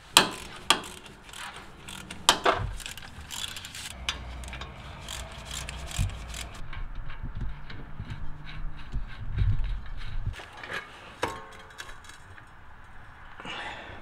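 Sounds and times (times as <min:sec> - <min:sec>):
hand ratchet clicking: 0:00.0 - 0:06.6.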